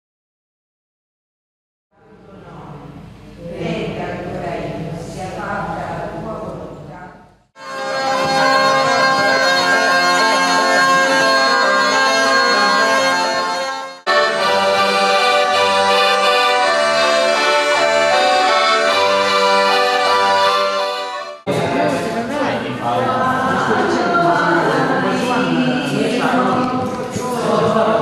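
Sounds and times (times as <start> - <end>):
voices: 2.0 - 7.1, 7.9 - 15.4, 21.5 - 28.0
accordion folk dance tune: 7.6 - 21.5.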